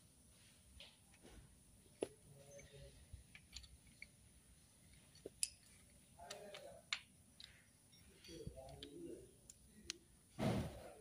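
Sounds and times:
metallic clicks of wrench: 3.3s - 4.1s.

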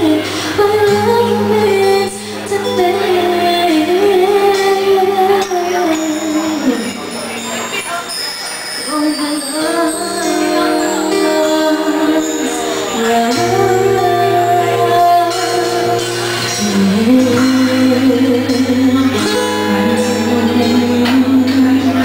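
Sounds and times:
woman singing: 0.0s - 7.4s, 8.8s - 22.0s
electric guitar: 0.0s - 8.0s, 8.9s - 22.0s
strummed acoustic guitar: 0.0s - 22.0s
low bass notes: 12.8s - 22.0s.

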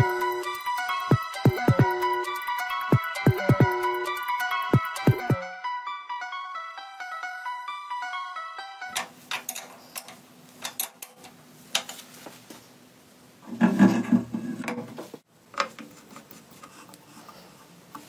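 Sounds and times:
motorcycle parts clicking and knocking: 9.0s - 12.0s.

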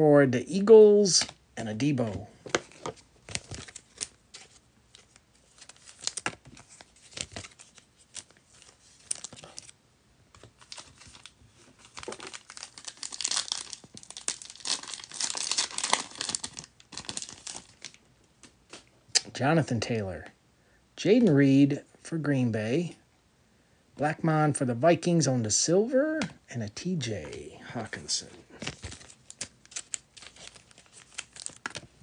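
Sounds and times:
foil wrapper crinkling: 5.0s - 9.7s, 10.6s - 18.0s, 28.6s - 32.0s
foil wrapper tearing: 11.9s - 18.0s, 28.9s - 31.8s.

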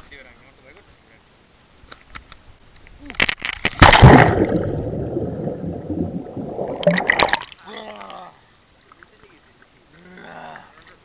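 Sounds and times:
person splashing into water: 3.7s - 7.5s
person sputtering water: 3.8s - 7.5s
muffled underwater gurgling: 4.0s - 7.4s.

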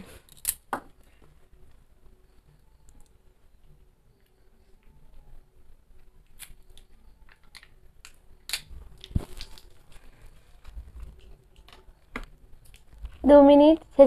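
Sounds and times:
plastic cups clicking and crinkling: 6.4s - 13.2s.

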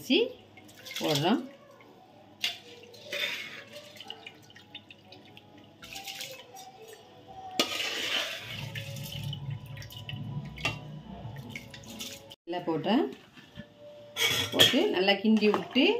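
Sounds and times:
ladle stirring rice in liquid: 2.4s - 10.0s.

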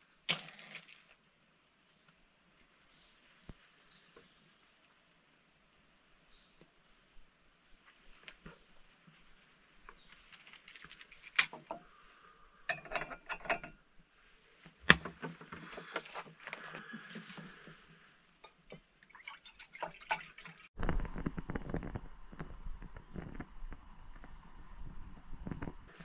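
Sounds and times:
water pouring and sloshing: 15.6s - 20.9s.

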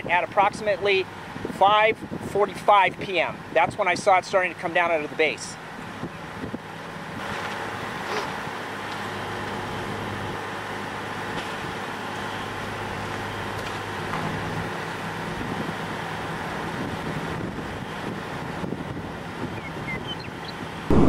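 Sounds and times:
road and wind noise: 0.0s - 21.0s
vehicle engine hum: 5.1s - 21.0s.

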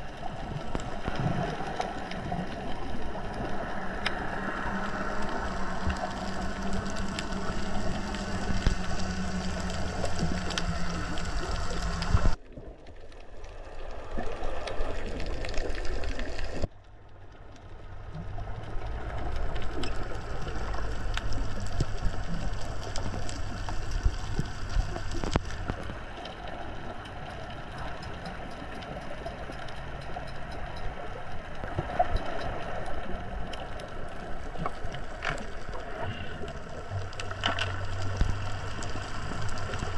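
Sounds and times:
muffled underwater noise: 0.0s - 12.4s, 30.7s - 39.9s
low hum: 0.0s - 14.2s, 16.4s - 39.9s
crackling: 0.0s - 39.9s.

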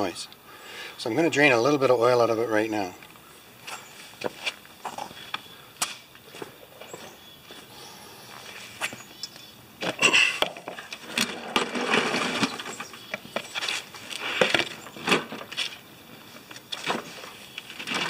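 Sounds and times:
lawn mower knocking and scraping: 9.8s - 15.8s, 16.4s - 18.0s.

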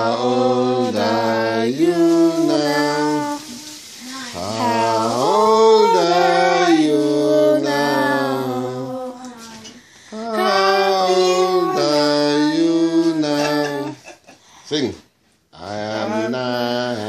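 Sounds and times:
voices singing a birthday song: 0.0s - 14.4s, 15.5s - 17.0s.

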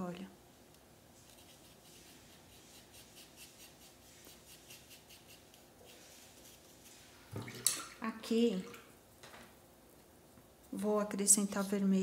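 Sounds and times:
paintbrush bristles scratching: 1.2s - 7.2s.

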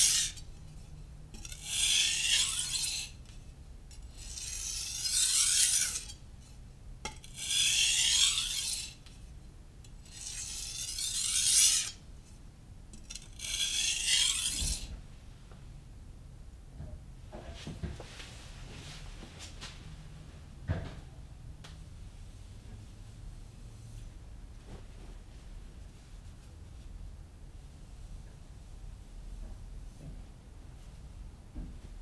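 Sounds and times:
knife sharpening on whetstone: 0.0s - 0.8s, 1.4s - 3.2s, 4.0s - 6.2s, 7.1s - 9.0s, 10.0s - 12.0s, 13.0s - 14.9s.

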